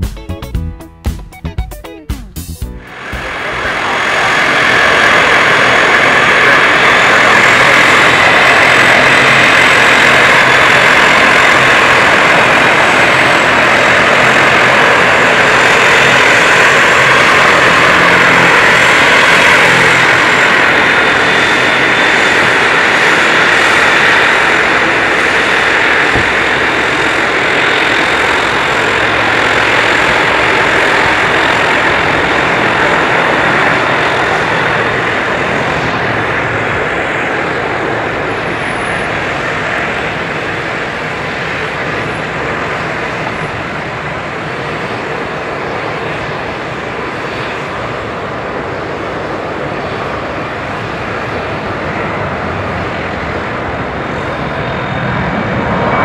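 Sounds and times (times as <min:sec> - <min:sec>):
jet engines at takeoff thrust: 0:02.8 - 0:56.0.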